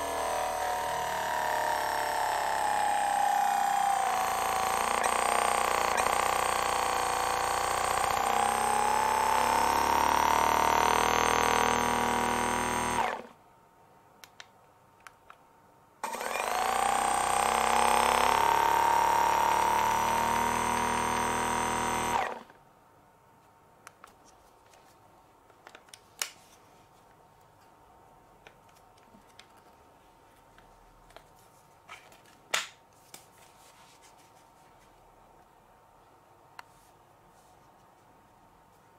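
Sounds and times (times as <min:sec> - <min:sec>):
massage gun motor running: 0:00.0 - 0:13.3, 0:16.0 - 0:22.5.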